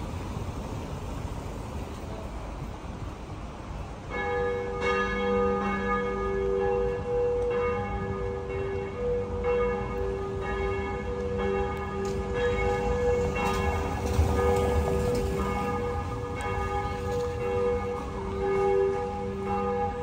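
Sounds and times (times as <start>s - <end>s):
church bells ringing: 4.0s - 20.0s.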